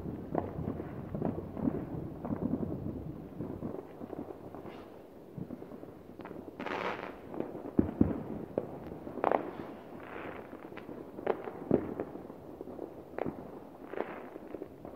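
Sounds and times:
fireworks bangs and pops: 0:00.0 - 0:14.9
crackling hiss of bursting shells: 0:03.8 - 0:05.2, 0:06.1 - 0:12.2.

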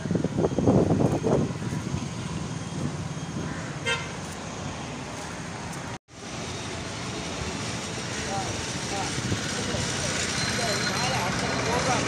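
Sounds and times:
street traffic: 0:00.0 - 0:12.0
vehicle horn toot: 0:03.8 - 0:04.2.

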